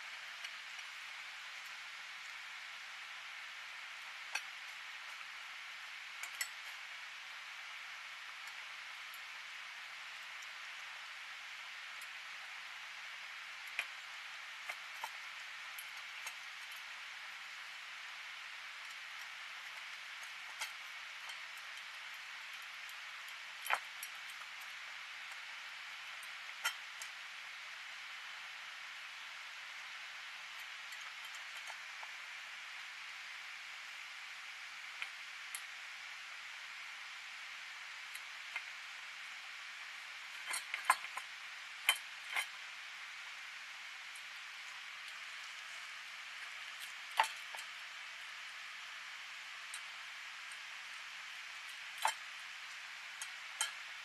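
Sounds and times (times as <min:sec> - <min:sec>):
steady hiss: 0:00.0 - 0:54.0
cats eating from metal bowls: 0:13.6 - 0:27.4, 0:30.4 - 0:32.4, 0:38.1 - 0:48.2
cat eating from metal bowl: 0:40.2 - 0:42.6, 0:44.0 - 0:48.1.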